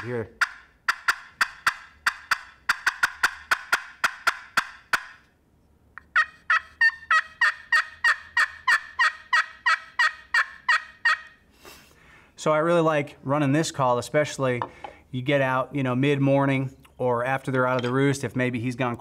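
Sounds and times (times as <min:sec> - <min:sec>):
turkey call hen yelps: 0:00.4 - 0:05.2, 0:06.0 - 0:11.4.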